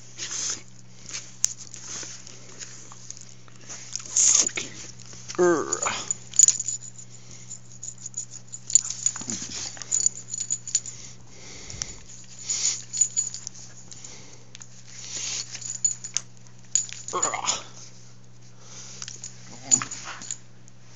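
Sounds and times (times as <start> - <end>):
steady low hum: 0.0 - 20.9
dog scuffling with clicks: 8.1 - 10.5.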